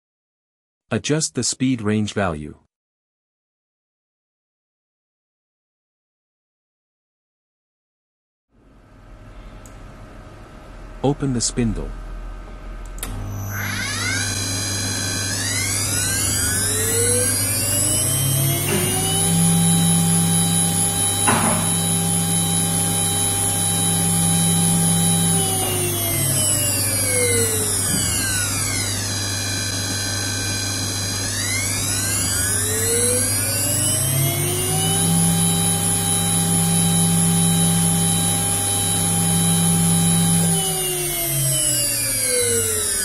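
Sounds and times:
spindle motor whine: 12.8 - 43.0.

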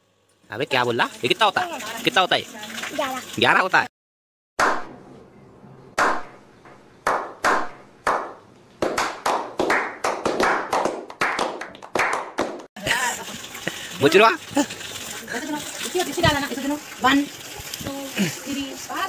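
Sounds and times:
hands clapping: 6.0 - 6.3, 7.0 - 12.7.

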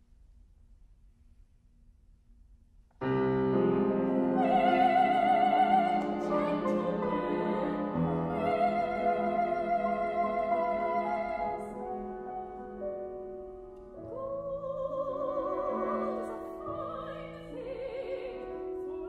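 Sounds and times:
grand piano playing: 3.0 - 19.0
soprano singing opera: 3.9 - 12.8, 13.8 - 19.0.

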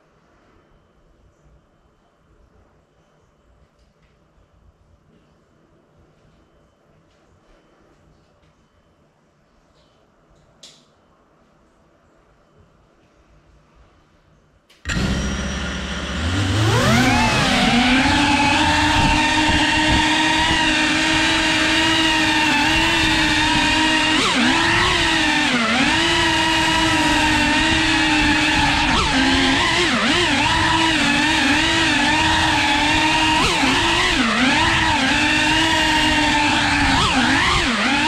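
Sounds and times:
drone motors whining: 14.9 - 38.0.

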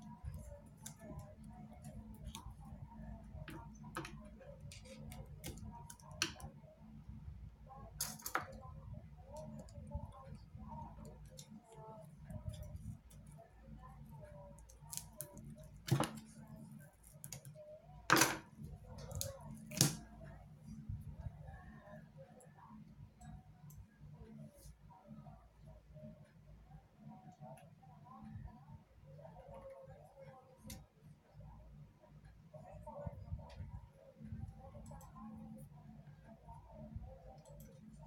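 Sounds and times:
small clicks and taps: 0.0 - 6.6
steady low hum: 0.0 - 38.0.

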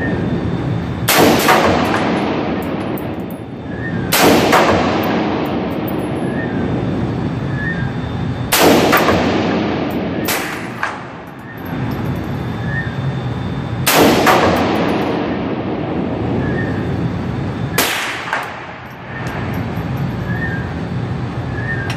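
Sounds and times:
rifle gunshots: 1.1 - 2.7, 4.1 - 5.7, 8.5 - 11.2, 13.9 - 15.4.

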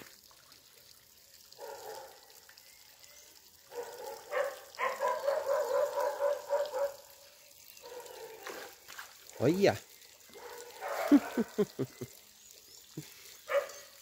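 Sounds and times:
faint water splashing: 0.0 - 14.0
dog barking: 1.6 - 2.3, 3.7 - 7.2, 7.8 - 8.8, 10.3 - 11.6, 13.5 - 13.8.

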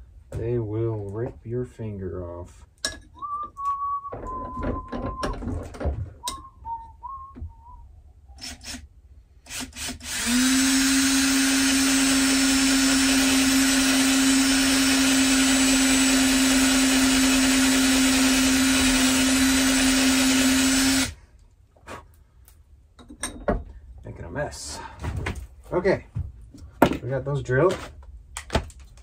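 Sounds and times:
cordless drill whining: 9.5 - 21.2.

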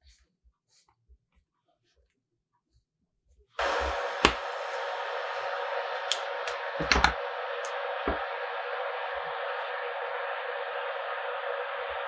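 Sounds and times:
cooling fan whirring: 3.6 - 12.0.

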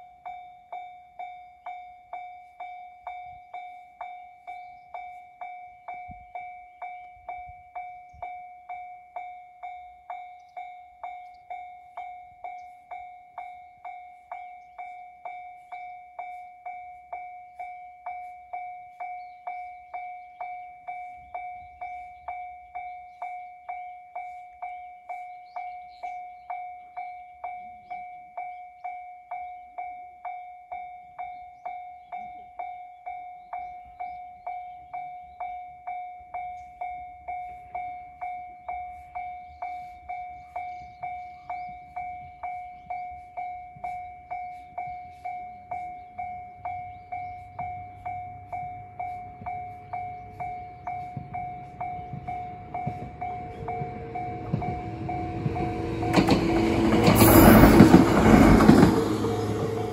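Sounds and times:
level crossing bell ringing: 39.4 - 58.2.

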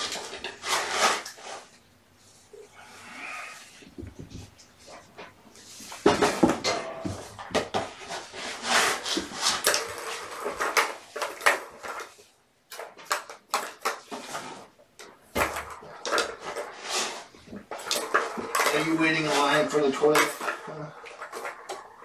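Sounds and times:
plastic balls rattling in toy track: 8.7 - 22.0.

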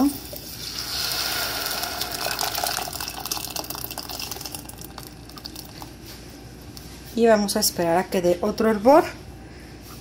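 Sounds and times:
salsa sizzling in hot oil: 0.0 - 5.3.

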